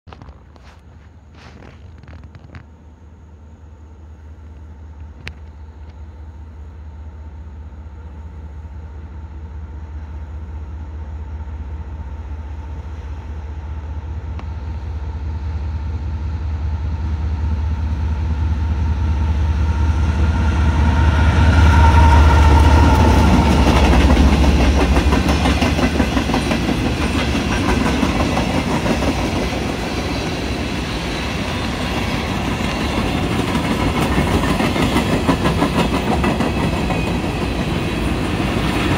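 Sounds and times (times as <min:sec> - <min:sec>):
diesel locomotive engine rumble: 0:00.1 - 0:38.9
train wheels clattering on rails: 0:18.2 - 0:38.9.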